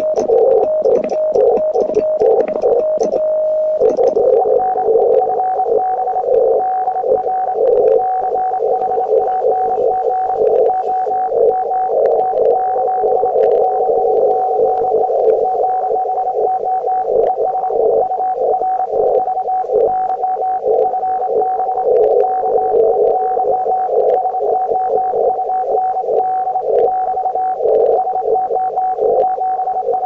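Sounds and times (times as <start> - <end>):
fluttering radio band noise: 0.0 - 3.2, 3.8 - 16.6
morse code tone: 0.0 - 30.0
static clicks: 0.0 - 30.0.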